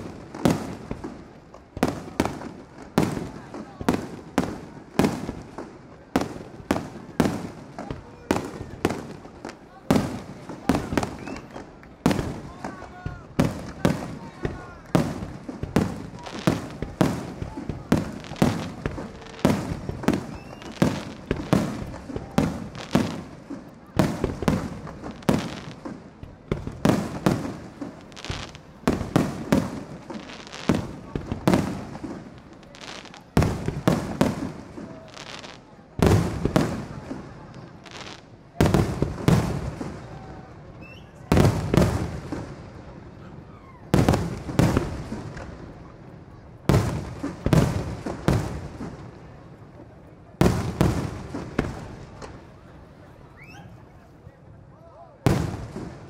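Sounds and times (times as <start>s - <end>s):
firework shells bursting: 13.0s - 34.6s.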